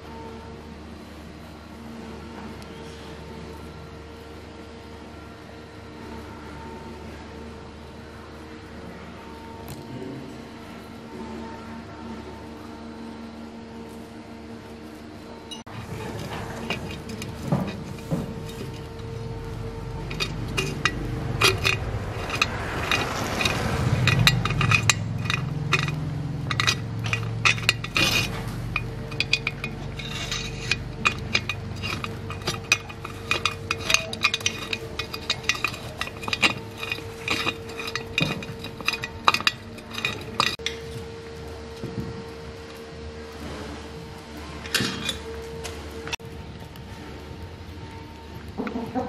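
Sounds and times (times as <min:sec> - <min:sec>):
faint steady hum: 0:00.0 - 0:49.0
tool clinking on plastic and metal: 0:15.6 - 0:40.8.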